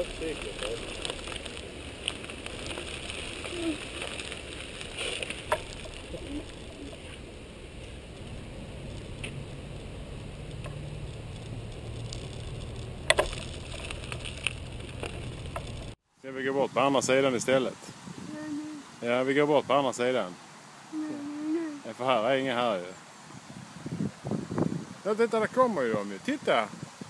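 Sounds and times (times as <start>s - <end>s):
wheels rolling on gravel: 0.0s - 16.0s
wheels knocking on wooden boards: 10.6s - 16.0s.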